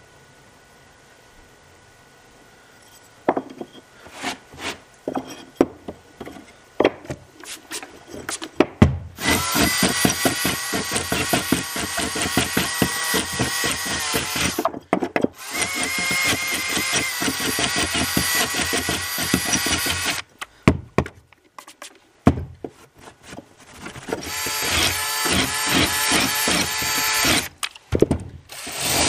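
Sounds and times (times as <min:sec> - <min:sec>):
electric power tool running: 0:09.2 - 0:14.6, 0:15.4 - 0:20.2, 0:24.2 - 0:27.5, 0:28.5 - 0:29.0.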